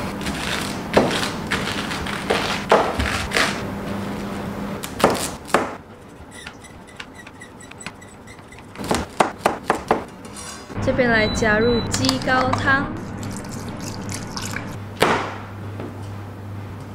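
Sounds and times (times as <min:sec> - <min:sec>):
knife chopping on plastic board: 0:08.8 - 0:10.1.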